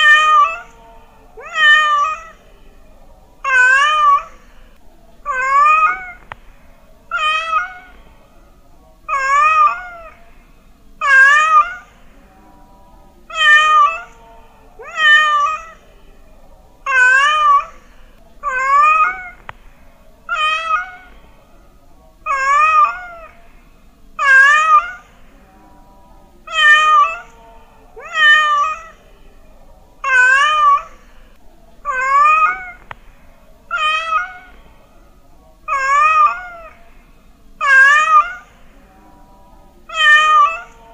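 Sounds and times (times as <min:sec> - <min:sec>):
cat meowing: 0:00.0 - 0:00.8, 0:01.4 - 0:02.4, 0:03.4 - 0:04.4, 0:05.3 - 0:06.4, 0:07.1 - 0:08.0, 0:09.1 - 0:10.2, 0:11.0 - 0:11.9, 0:13.3 - 0:14.2, 0:14.8 - 0:15.8, 0:16.9 - 0:17.8, 0:18.4 - 0:19.6, 0:20.3 - 0:21.2, 0:22.2 - 0:23.4, 0:24.2 - 0:25.2, 0:26.5 - 0:27.4, 0:28.0 - 0:29.0, 0:30.0 - 0:30.9, 0:31.8 - 0:33.0, 0:33.7 - 0:34.6, 0:35.7 - 0:36.8, 0:37.6 - 0:38.6, 0:39.9 - 0:40.8.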